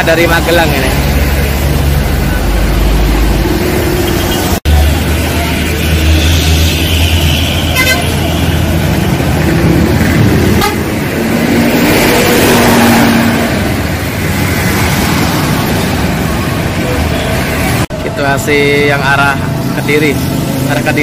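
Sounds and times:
diesel bus engine humming: 0:00.0 - 0:18.9
passing road traffic: 0:00.0 - 0:21.0
short horn toot: 0:07.0 - 0:08.2.

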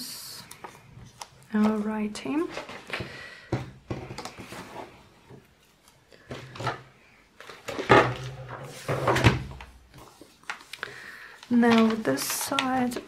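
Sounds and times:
paper rustling: 0:00.4 - 0:03.1, 0:07.4 - 0:13.0.

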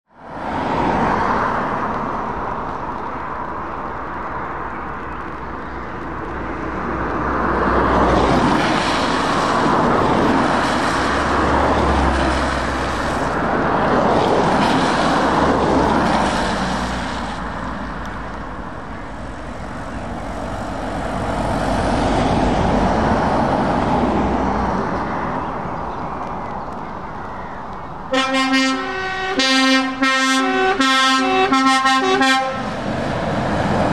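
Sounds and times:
road traffic passing: 0:00.1 - 0:33.9
tyre hiss on wet road: 0:01.3 - 0:22.3
truck horn blasts: 0:28.1 - 0:32.8.

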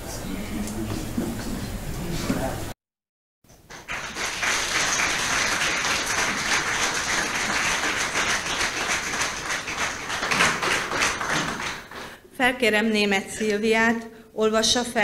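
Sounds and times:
audience applauding: 0:03.6 - 0:12.2.

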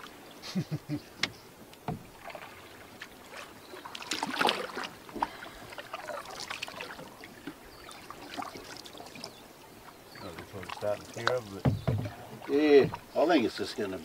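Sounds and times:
paddle splashing in water: 0:00.0 - 0:14.0
trickling drips: 0:10.1 - 0:13.2
light knocks: 0:11.2 - 0:13.1.

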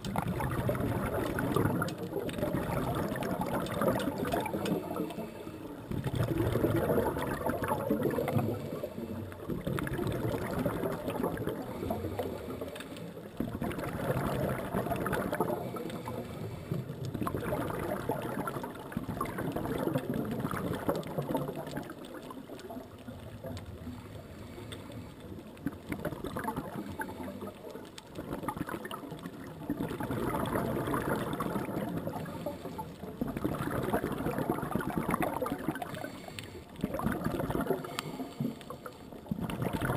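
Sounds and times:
faint crackling: 0:00.0 - 0:39.9
underwater regulator bubbles gurgling: 0:00.0 - 0:39.9.

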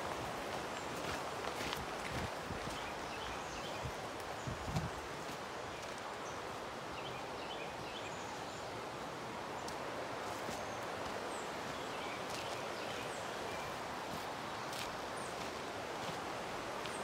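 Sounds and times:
footsteps on dirt trail: 0:00.0 - 0:06.1, 0:09.6 - 0:13.0, 0:14.1 - 0:17.0
river rushing: 0:00.0 - 0:17.0.

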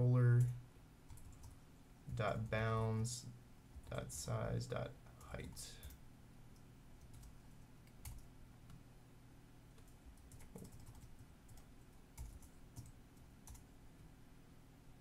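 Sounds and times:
low steady hum: 0:00.0 - 0:15.0
keyboard keystrokes: 0:09.8 - 0:11.6.

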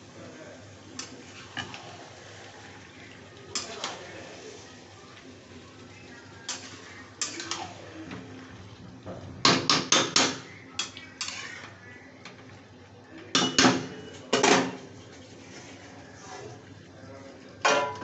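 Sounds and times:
metal spatula scraping a metal pan: 0:06.4 - 0:07.8, 0:10.8 - 0:11.8.

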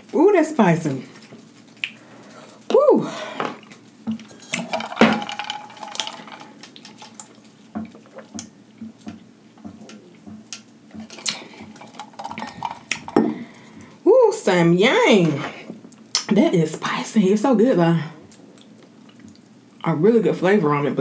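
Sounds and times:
person chewing noodles: 0:01.2 - 0:02.7, 0:05.7 - 0:14.0, 0:18.3 - 0:19.8.

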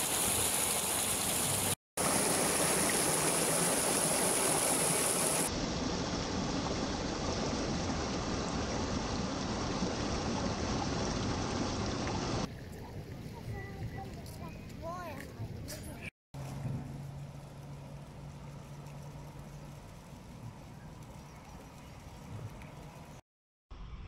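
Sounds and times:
water rushing over stones: 0:00.0 - 0:12.5.

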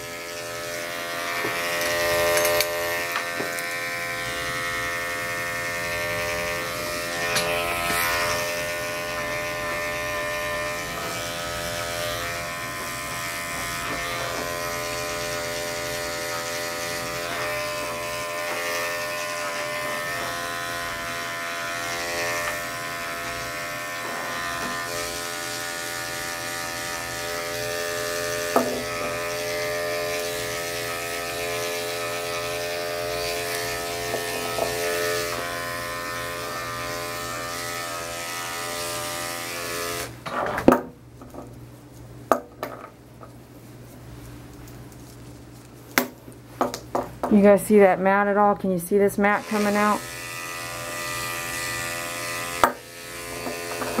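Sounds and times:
electric dog clippers running: 0:00.0 - 0:40.8, 0:48.2 - 0:54.0.

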